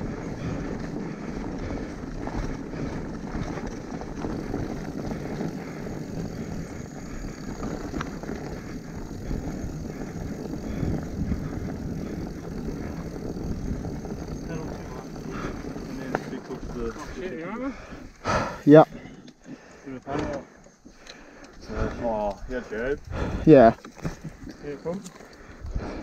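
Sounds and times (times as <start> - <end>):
wind on microphone: 0.0 - 16.0
tyres rolling over dirt: 0.0 - 20.9
bike rattling over bumps: 0.0 - 26.0.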